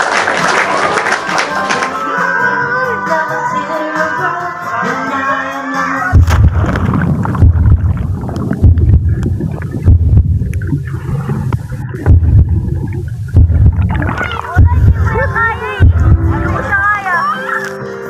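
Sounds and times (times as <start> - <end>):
underwater sloshing and bubbles: 6.3 - 16.8.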